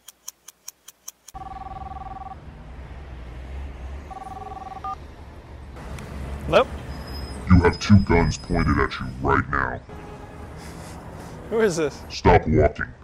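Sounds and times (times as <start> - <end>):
street traffic: 0.1 - 13.0
mobile phone ringing: 1.3 - 2.4, 4.1 - 5.0.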